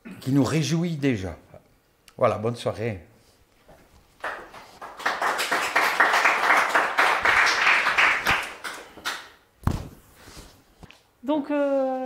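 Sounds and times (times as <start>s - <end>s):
audience applauding: 4.2s - 9.3s.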